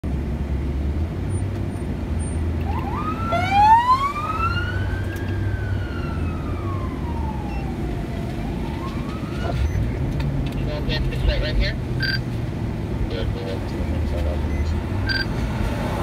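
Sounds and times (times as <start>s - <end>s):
car road hum: 0.0s - 16.0s
police siren yelp and wail: 2.6s - 9.7s.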